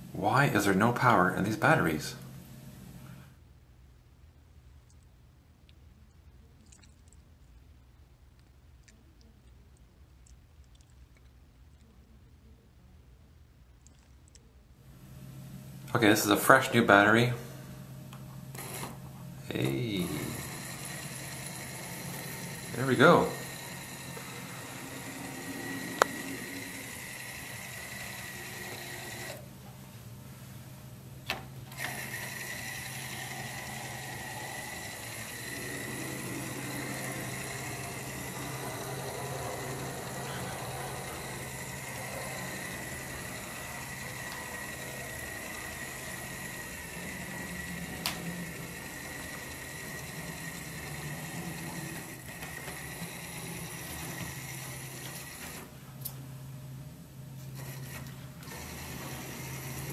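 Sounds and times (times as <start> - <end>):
toy locomotive motor whining: 18.5 - 29.4, 31.7 - 55.7, 57.6 - 59.9
wheels on rails: 19.6 - 29.4, 31.7 - 55.7, 57.6 - 59.9.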